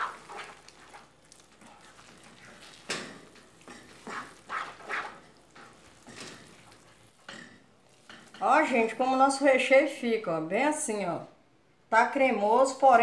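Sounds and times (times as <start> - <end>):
spoon scraping frying pan: 0.0 - 8.9.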